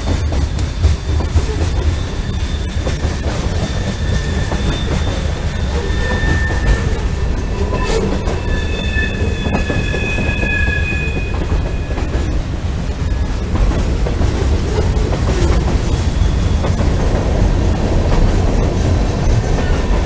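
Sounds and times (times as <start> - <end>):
train wheels rumbling on rail: 0.0 - 20.0
high-pitched metal squeals: 1.5 - 12.3.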